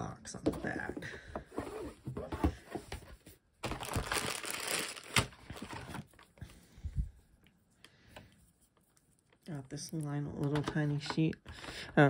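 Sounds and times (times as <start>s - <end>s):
plastic packaging crinkling: 3.6s - 6.4s.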